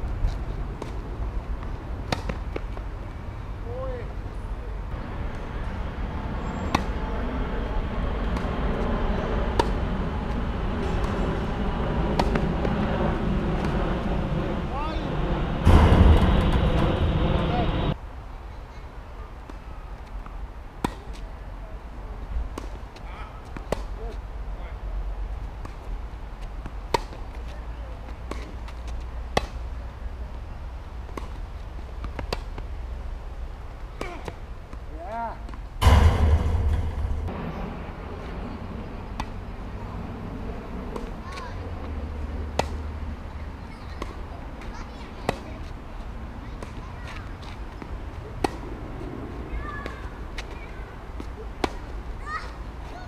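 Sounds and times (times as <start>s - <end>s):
rackets hitting tennis ball: 0.3s - 2.9s, 5.2s - 7.2s, 9.5s - 12.8s, 20.8s - 21.4s, 22.5s - 24.2s, 25.5s - 29.7s, 31.1s - 32.7s, 33.6s - 35.9s, 40.6s - 52.1s
tennis ball bouncing: 0.8s - 2.9s, 6.6s - 7.0s, 9.5s - 9.8s, 12.2s - 12.8s, 23.5s - 24.0s, 42.5s - 42.9s, 43.8s - 45.7s
steady low rumble: 2.8s - 18.1s, 35.7s - 47.0s
tennis racket striking ball: 12.2s - 12.4s.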